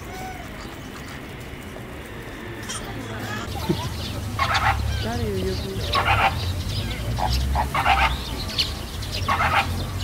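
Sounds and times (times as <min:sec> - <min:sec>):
flamingos calling: 0:02.6 - 0:10.0.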